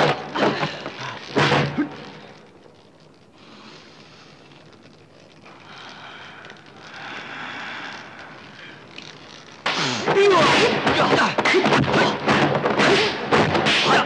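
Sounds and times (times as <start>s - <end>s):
loud fight hits: 9.7s - 14.0s.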